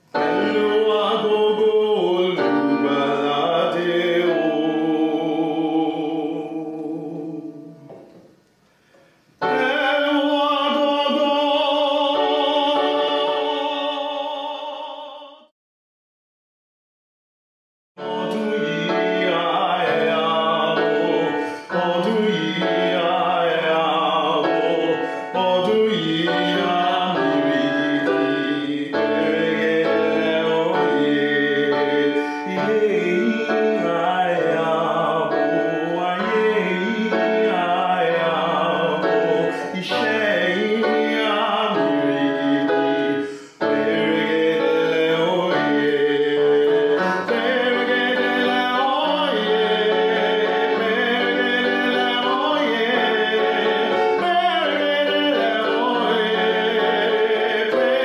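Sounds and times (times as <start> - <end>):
man singing: 0.0 - 8.0, 9.4 - 15.5, 18.0 - 58.0
piano accompaniment: 0.0 - 15.5, 18.0 - 58.0.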